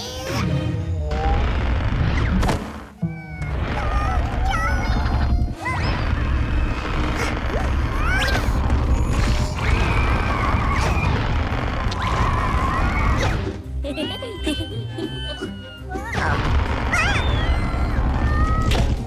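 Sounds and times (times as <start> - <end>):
cartoon music: 3.0 - 5.8, 12.1 - 19.0.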